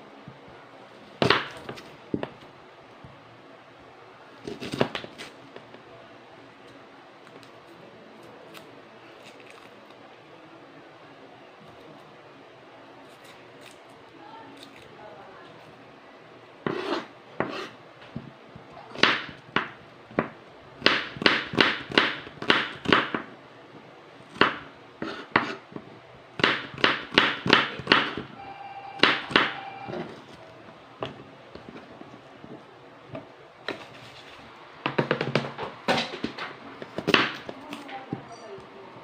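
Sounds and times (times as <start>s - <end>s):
knife chopping on wooden board: 16.7s - 18.3s, 18.9s - 23.3s, 24.4s - 25.6s, 26.4s - 28.3s, 34.9s - 37.5s.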